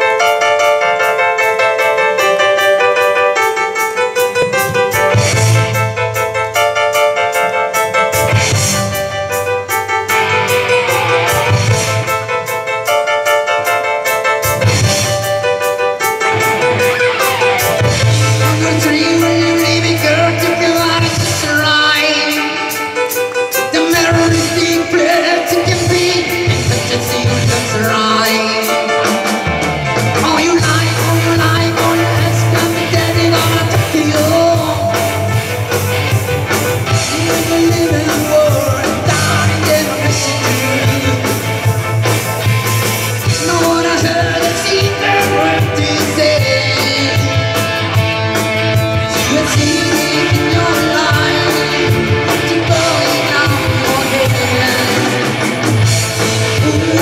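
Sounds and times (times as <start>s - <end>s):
rock band playing: 0.0s - 57.0s
person singing: 9.7s - 13.8s, 14.6s - 57.0s
low bass line: 16.4s - 21.3s.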